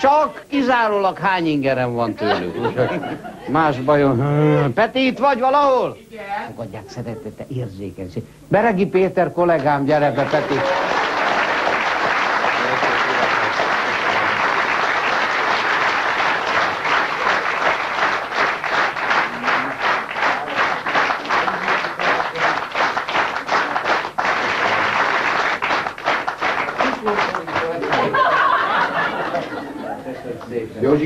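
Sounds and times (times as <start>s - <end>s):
audience applauding: 10.1s - 30.6s.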